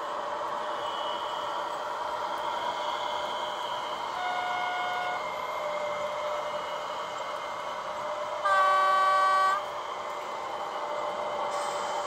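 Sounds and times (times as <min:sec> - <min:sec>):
model train horn: 0:04.1 - 0:05.3, 0:08.4 - 0:09.8.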